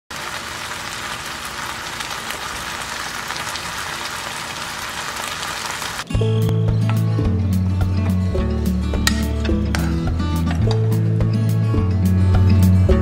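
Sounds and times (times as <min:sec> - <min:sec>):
food bubbling and sizzling in pan: 0:00.1 - 0:06.1
loud music: 0:06.0 - 0:13.0.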